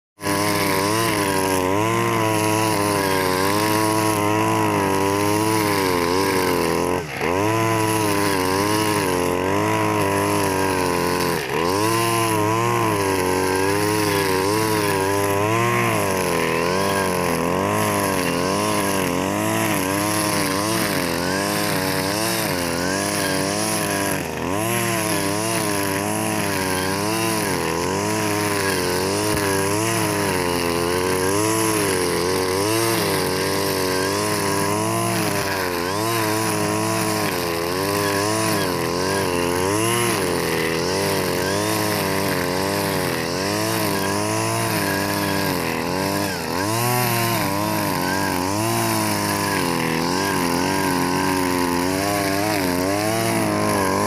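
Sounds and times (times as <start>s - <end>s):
brush cutter engine running: 0.2s - 54.0s
nylon line cutting grass: 0.2s - 54.0s.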